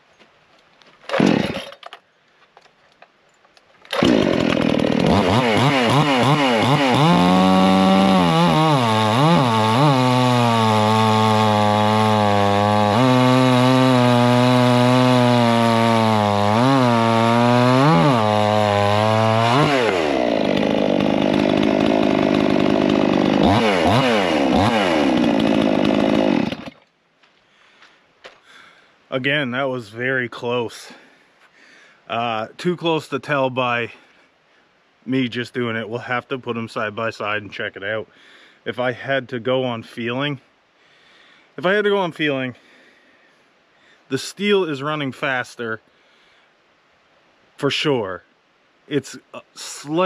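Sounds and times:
chainsaw cutting a log: 1.1s - 2.0s, 3.9s - 26.8s.

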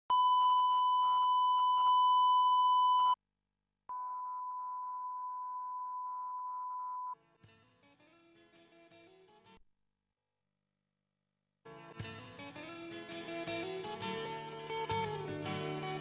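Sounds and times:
steady test tone beep: 0.1s - 3.2s, 3.9s - 7.2s.

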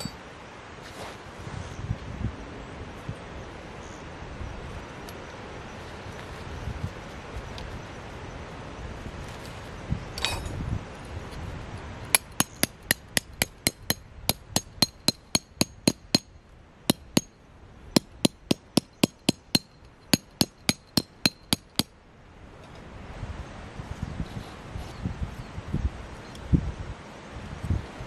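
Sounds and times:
metallic clink: 10.2s - 10.6s, 18.0s - 21.8s
hammer striking metal tent peg: 12.1s - 16.3s, 16.9s - 17.3s, 18.0s - 21.9s.

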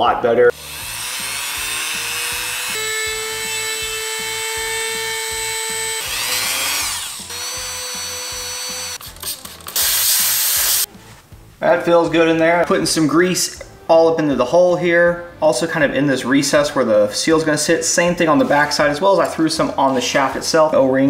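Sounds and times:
rotary tool wire wheel whining: 0.6s - 9.9s.

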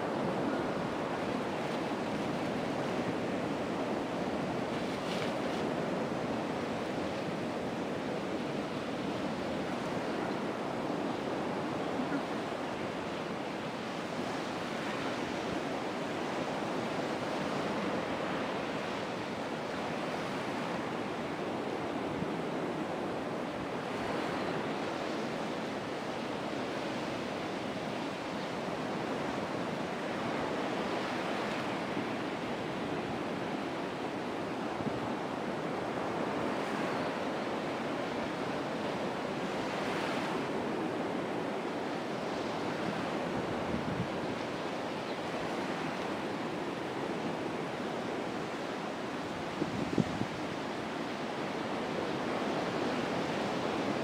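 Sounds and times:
wind on microphone: 39.5s - 54.0s.

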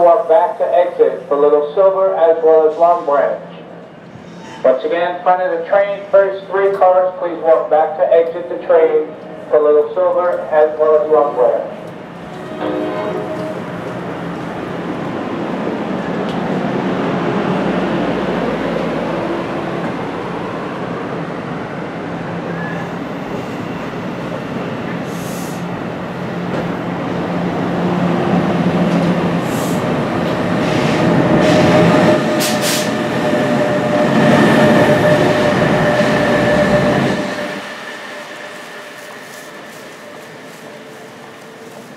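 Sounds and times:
train wheels rumbling on rails: 5.4s - 41.9s
electric locomotive whine: 11.0s - 41.9s.

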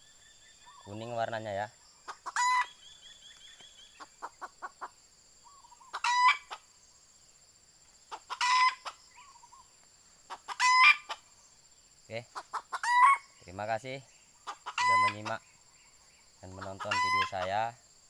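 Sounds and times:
rooster calling harshly: 10.5s - 11.2s, 12.7s - 13.2s, 14.6s - 15.3s, 16.7s - 17.5s.

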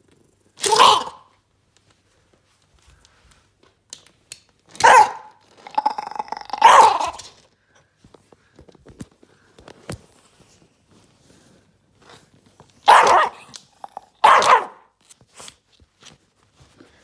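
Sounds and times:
dog barking: 4.8s - 5.4s, 6.5s - 7.2s, 12.8s - 13.5s, 14.2s - 14.9s
dog growling: 5.6s - 7.2s.

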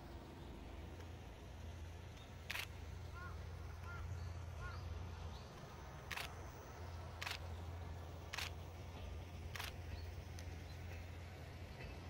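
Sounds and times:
steady low rumble: 0.0s - 12.0s
camera shutter clicks: 2.4s - 2.8s, 6.1s - 6.4s, 7.2s - 7.5s, 8.3s - 8.6s, 9.5s - 9.8s.

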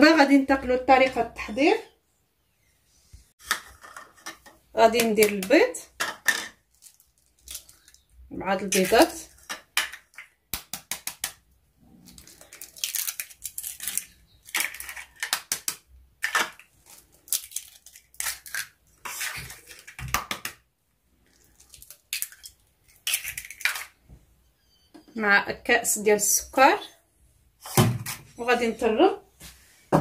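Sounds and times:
eggshells cracking: 6.6s - 11.5s, 12.1s - 20.6s, 21.2s - 24.0s
eggshells crunching: 6.7s - 11.3s, 12.1s - 20.3s, 21.2s - 24.0s.

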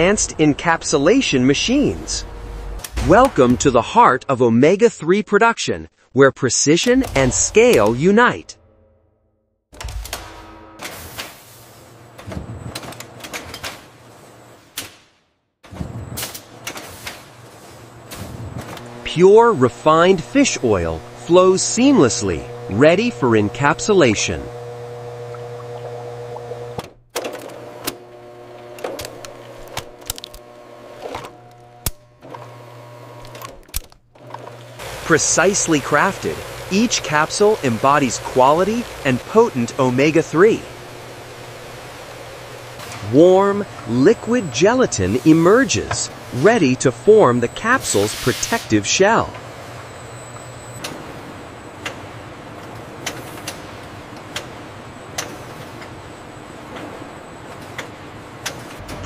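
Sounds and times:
machine humming: 0.0s - 3.9s, 18.6s - 33.5s, 34.1s - 53.1s.

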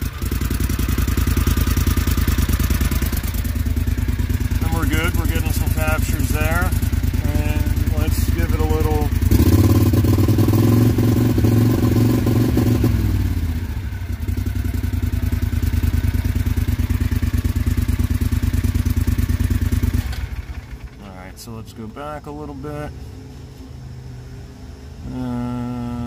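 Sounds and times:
utility vehicle engine running rough: 0.0s - 26.0s.

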